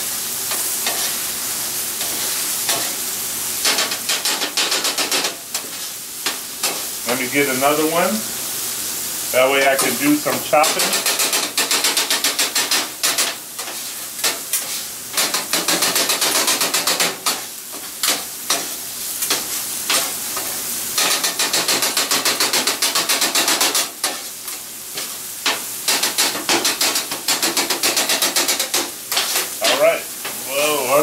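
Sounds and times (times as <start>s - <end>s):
food sizzling: 0.0s - 31.0s
metal spatulas chopping on griddle: 0.5s - 1.2s, 2.0s - 3.0s, 3.6s - 6.9s, 9.8s - 29.9s.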